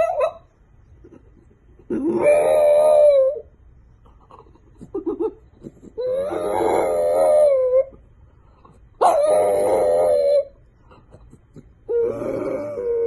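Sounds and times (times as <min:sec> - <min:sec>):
dog howling: 0:01.9 - 0:03.5, 0:06.0 - 0:08.0, 0:09.0 - 0:10.6, 0:11.9 - 0:13.0.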